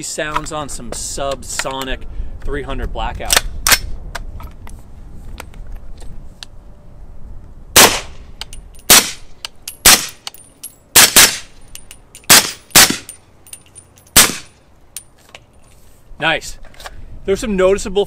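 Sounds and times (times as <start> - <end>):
suppressed rifle shots: 7.8 - 8.2, 12.3 - 13.1, 14.2 - 14.5.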